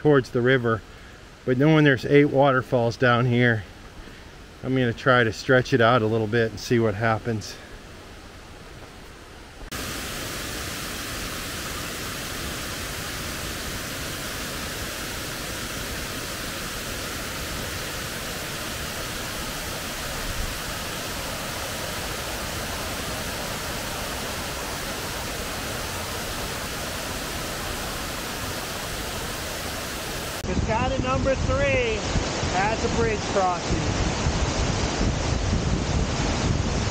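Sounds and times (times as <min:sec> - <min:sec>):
waterfall rushing: 0:09.6 - 0:36.9.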